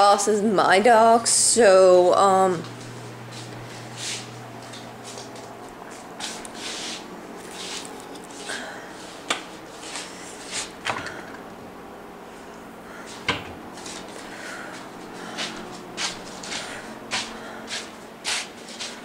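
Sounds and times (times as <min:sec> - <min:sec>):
soft handling rustling: 0:02.7 - 0:10.8.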